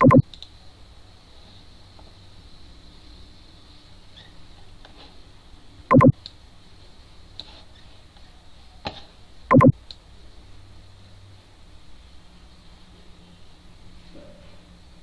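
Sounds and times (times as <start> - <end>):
computer mouse clicking and scrolling: 0.0 - 0.2, 5.9 - 6.1, 9.5 - 9.7.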